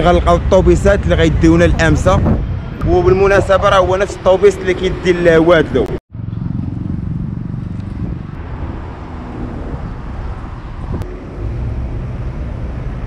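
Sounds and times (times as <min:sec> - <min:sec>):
car engines passing: 0:00.0 - 0:13.0
wind buffeting microphone: 0:00.0 - 0:13.0
pitched engine hum: 0:06.1 - 0:13.0.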